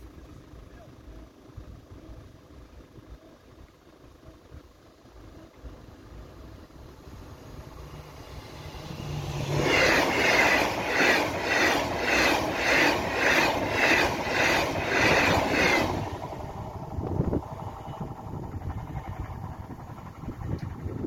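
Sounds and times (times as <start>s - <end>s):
high-speed train passing: 5.3s - 21.0s.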